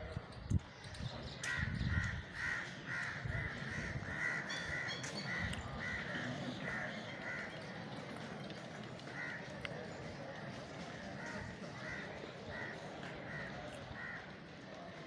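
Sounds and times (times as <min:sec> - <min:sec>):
crows cawing: 0:01.4 - 0:07.6, 0:09.0 - 0:09.6, 0:11.0 - 0:14.3.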